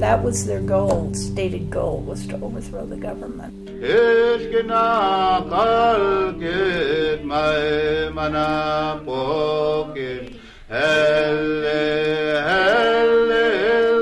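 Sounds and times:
low sustained accompaniment: 0:00.0 - 0:10.1
person singing long notes: 0:00.0 - 0:14.0.

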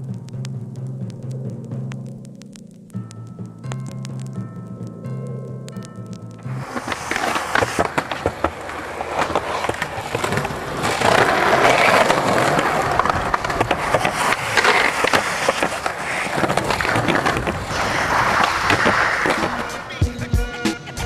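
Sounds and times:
skateboard wheels rolling on pavement: 0:06.4 - 0:21.0
skateboard clacks and knocks: 0:06.6 - 0:20.2.

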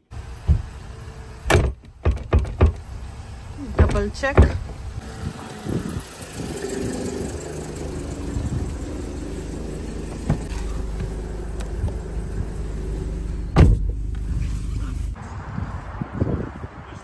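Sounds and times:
car engine idling: 0:00.0 - 0:15.2
car door slamming: 0:00.4 - 0:00.8, 0:01.4 - 0:02.9, 0:03.7 - 0:04.9, 0:10.0 - 0:12.5, 0:13.5 - 0:14.3.

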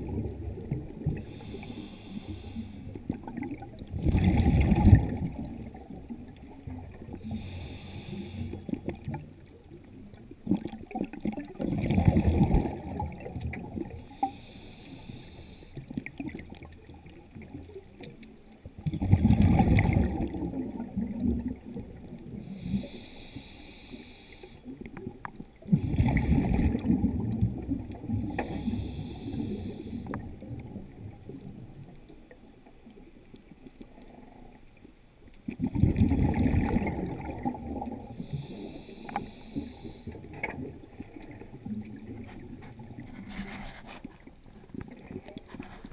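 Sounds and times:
low bubbling on exhale: 0:00.0 - 0:09.8, 0:10.4 - 0:17.8, 0:18.8 - 0:31.9, 0:35.5 - 0:43.9
regulator hiss on inhale: 0:01.1 - 0:03.1, 0:07.2 - 0:08.8, 0:14.0 - 0:15.9, 0:22.3 - 0:24.8, 0:28.2 - 0:30.4, 0:38.0 - 0:40.4.

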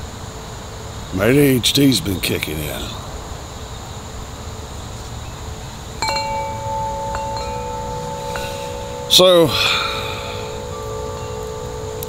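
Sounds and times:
metal tube wind chime ringing: 0:06.0 - 0:12.0.

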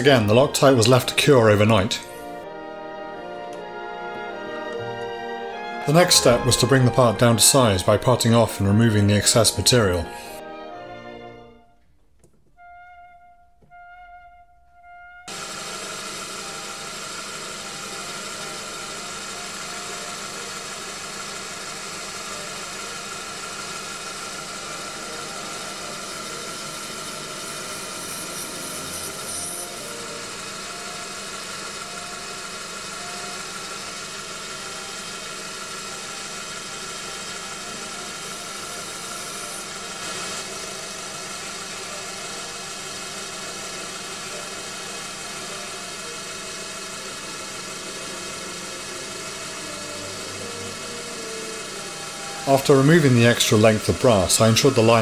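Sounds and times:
mini lathe running: 0:00.0 - 0:11.4, 0:15.3 - 0:55.0
soft orchestral music: 0:00.0 - 0:15.4, 0:39.6 - 0:55.0
tool cutting brass: 0:15.3 - 0:32.1, 0:33.1 - 0:41.0.

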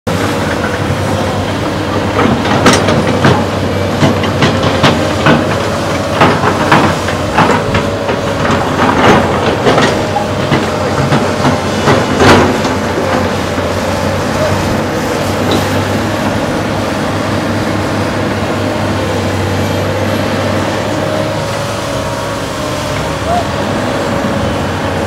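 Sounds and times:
excavator diesel engine: 0:00.1 - 0:25.0
metal clanks and knocks: 0:00.2 - 0:14.8, 0:15.4 - 0:16.4.

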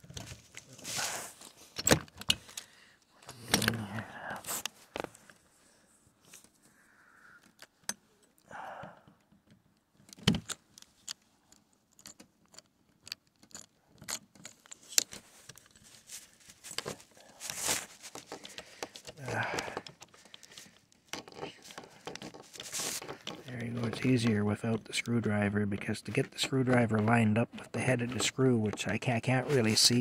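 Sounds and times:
screwdriver clicking and scraping screws: 0:10.1 - 0:16.0, 0:16.7 - 0:30.0.

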